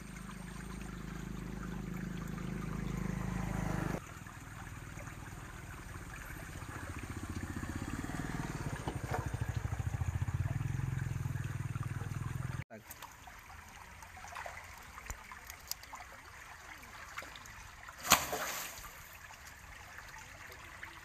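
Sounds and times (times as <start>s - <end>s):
low motor hum: 0.0s - 12.7s
faint trickling water: 0.0s - 21.0s.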